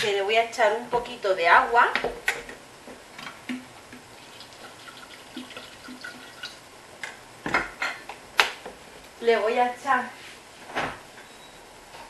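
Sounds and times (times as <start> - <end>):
water trickling into bowl: 4.2 - 6.6.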